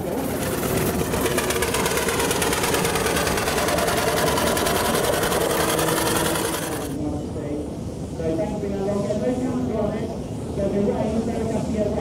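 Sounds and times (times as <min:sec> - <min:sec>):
steam engine mechanical clatter: 0:00.0 - 0:07.0.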